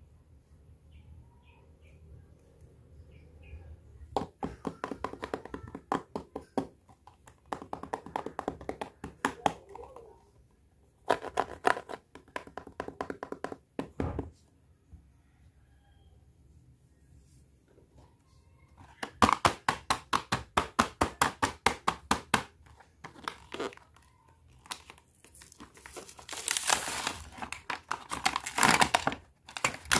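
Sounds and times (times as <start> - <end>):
clicks and taps on plastic toys: 4.1 - 10.2, 11.0 - 14.0, 18.8 - 23.3.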